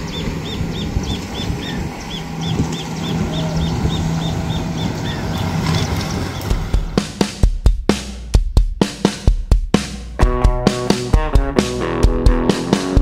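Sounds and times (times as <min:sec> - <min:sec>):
high repeating chirp: 0:00.0 - 0:06.6
distant motorboat engine: 0:00.0 - 0:07.4.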